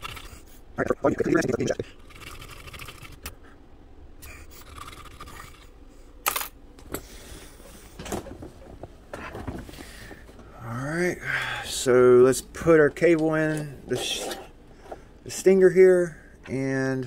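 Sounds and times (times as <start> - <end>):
metal file scraping steel: 13.9 - 14.5.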